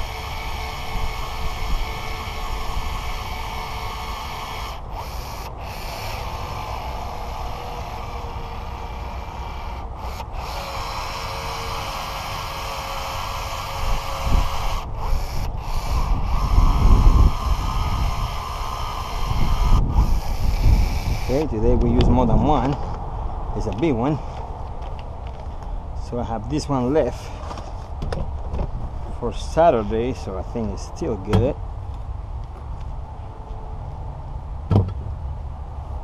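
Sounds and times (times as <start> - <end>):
wind rumbling on microphone: 0.0 - 5.8, 13.6 - 36.0
caulking gun working: 0.0 - 22.0.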